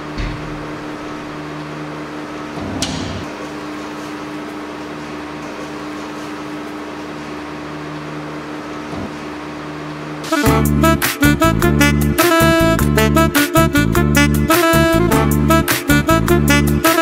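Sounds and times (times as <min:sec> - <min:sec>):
steady low hum: 0:00.0 - 0:16.9
door thump: 0:00.1 - 0:00.8.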